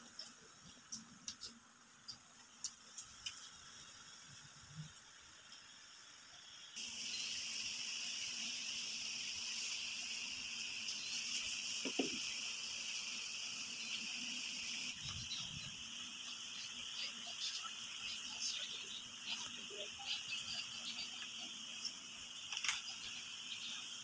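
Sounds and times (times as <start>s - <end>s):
crickets chirring: 5.1s - 24.0s.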